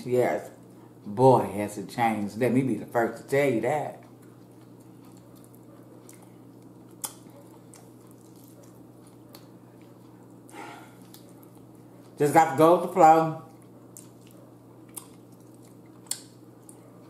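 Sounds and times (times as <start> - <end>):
person gnawing meat off bone: 4.0 - 12.2, 13.4 - 16.8.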